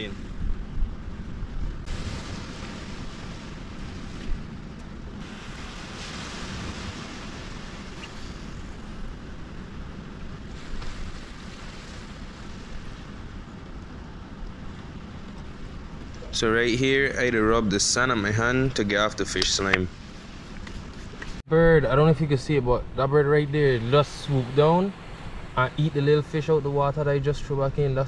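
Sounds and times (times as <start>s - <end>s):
wind on microphone: 0.0s - 21.4s
small waves washing on beach: 1.8s - 21.4s, 23.6s - 26.9s.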